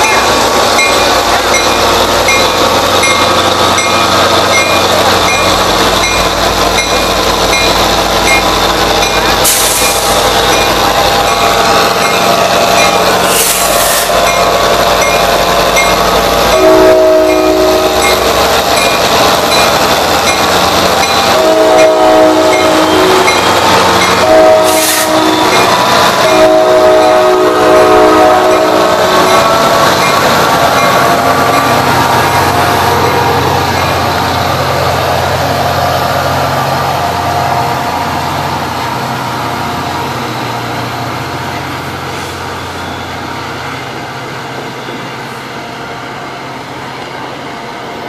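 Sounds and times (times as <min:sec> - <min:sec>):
train rumbling and rattling: 0:00.0 - 0:48.0
train horn chord: 0:16.5 - 0:18.0, 0:21.3 - 0:23.3, 0:24.2 - 0:25.6, 0:26.2 - 0:29.2.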